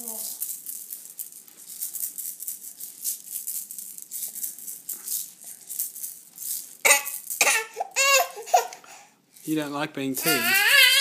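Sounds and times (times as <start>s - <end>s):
plastic baby rattle shaking: 0.0s - 8.0s, 10.2s - 11.0s
child's voice burst: 10.2s - 11.0s.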